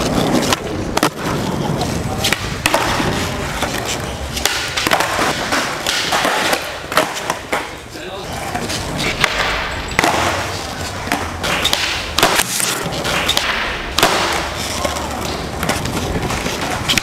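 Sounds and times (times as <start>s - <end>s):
skateboard wheels rolling: 0.0s - 17.0s
skateboard tail pops and landings: 11.1s - 14.6s.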